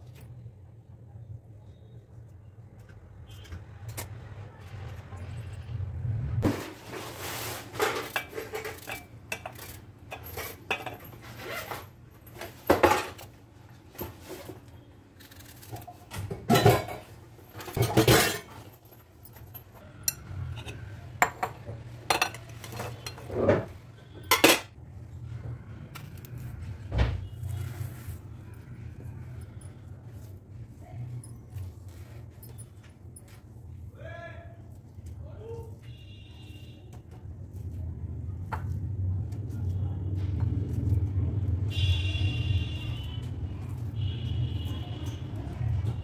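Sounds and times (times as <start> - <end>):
dishes and cutlery clinking: 7.7 - 13.3, 15.8 - 24.8.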